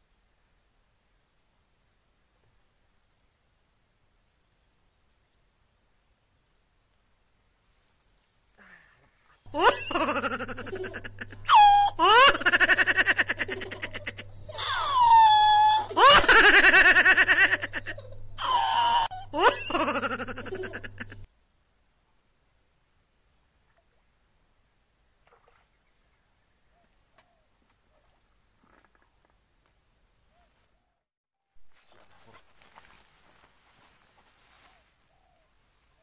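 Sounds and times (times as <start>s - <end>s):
comic high-pitched laughter: 9.5s - 21.3s.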